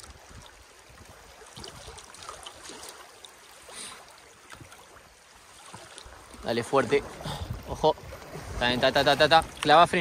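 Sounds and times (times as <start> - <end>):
water drips and splashes: 0.0 - 10.0
water lapping along canoe hull: 0.0 - 10.0
water hiss: 3.5 - 4.3.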